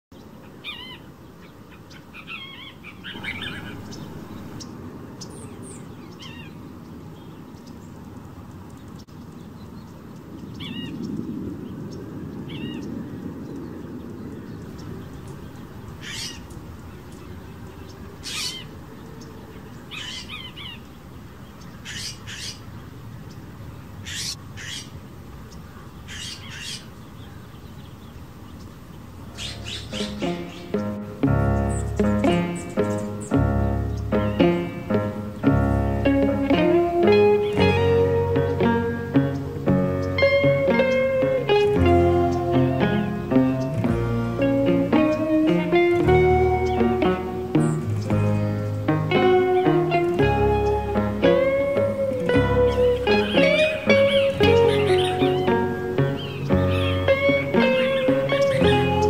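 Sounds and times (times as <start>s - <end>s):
small birds chirping: 0.1s - 59.0s
jay harsh calls: 18.2s - 18.7s, 24.0s - 25.0s, 29.3s - 35.9s.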